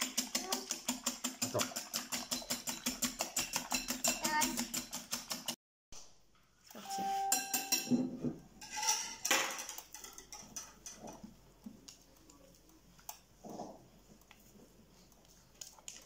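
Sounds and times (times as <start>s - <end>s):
utensils clinking ceramic bowls: 0.0s - 5.6s, 6.8s - 11.3s.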